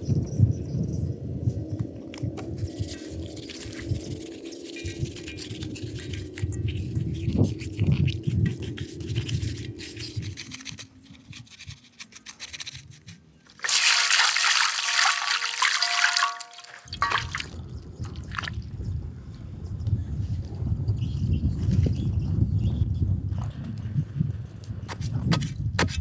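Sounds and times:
sponge scrubbing in metal wok: 13.6s - 17.4s
water pouring and splashing: 13.6s - 18.6s.

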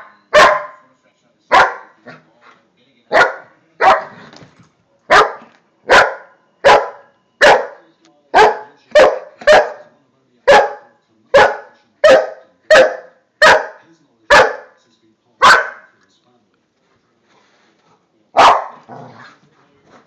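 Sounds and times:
large dog barking: 0.0s - 0.8s, 1.5s - 2.2s, 3.1s - 4.2s, 5.1s - 7.8s, 8.4s - 9.9s, 10.5s - 14.8s, 15.4s - 15.9s, 18.4s - 19.3s.

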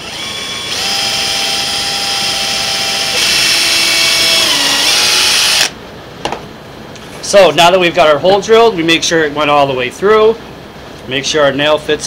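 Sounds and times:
cordless drill boring wood: 0.0s - 5.7s.

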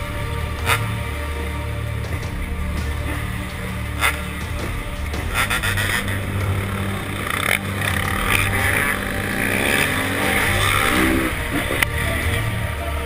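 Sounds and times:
motocross bike engines revving: 0.0s - 13.0s.

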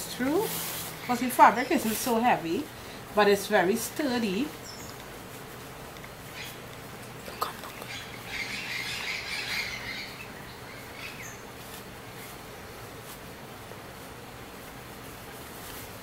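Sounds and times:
fabric rustling: 11.5s - 16.0s.

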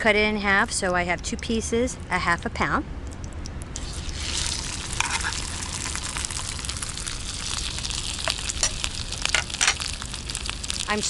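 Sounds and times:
crackles and spatter pops: 3.1s - 11.0s
fish sizzling in butter: 3.8s - 11.0s.

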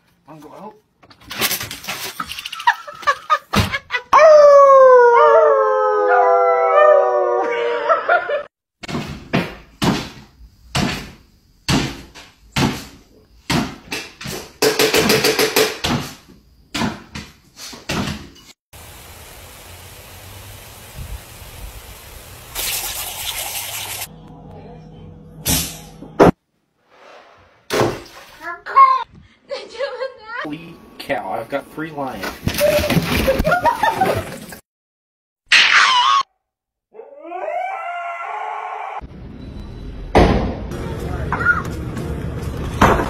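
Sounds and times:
dogs howling: 4.1s - 8.4s, 36.9s - 39.0s.

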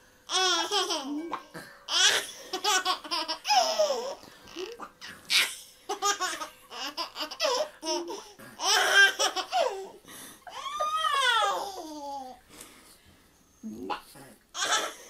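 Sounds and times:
toddler laughing: 1.9s - 12.3s, 14.6s - 15.0s.

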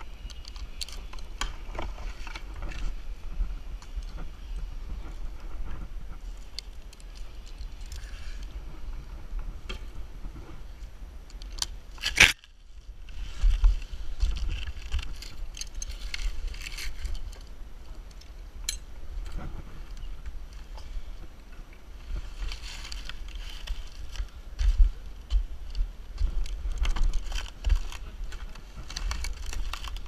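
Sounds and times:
dry palm fronds rustling: 0.0s - 30.0s
low wind rumble on microphone: 0.0s - 30.0s
carabiners and rope hardware clinking: 0.1s - 2.9s, 14.2s - 17.5s, 26.4s - 30.0s.

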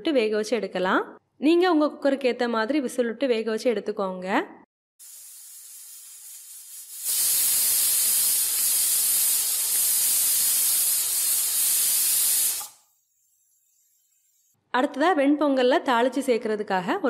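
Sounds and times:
pressure cooker whistling: 5.0s - 14.6s.

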